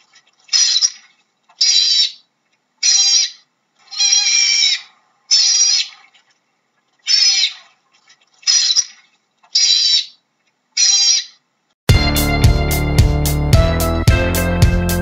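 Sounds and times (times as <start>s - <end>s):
otter high-pitched calls: 0.4s - 6.2s, 7.0s - 7.8s, 8.4s - 10.2s, 10.8s - 11.4s.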